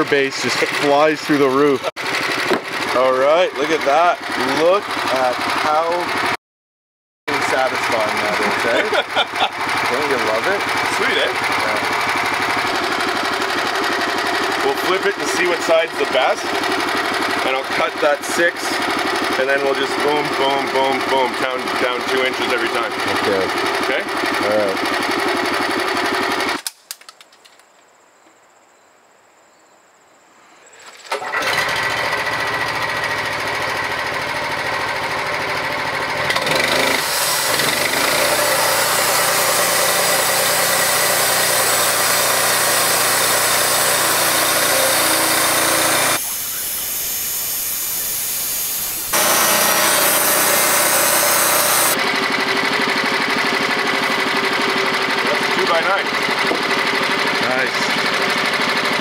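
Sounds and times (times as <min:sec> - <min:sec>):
gasoline engine running: 0:00.0 - 0:06.4, 0:07.3 - 0:26.5, 0:31.1 - 0:59.0
band blade sawing wood: 0:07.5 - 0:24.5, 0:36.2 - 0:52.0.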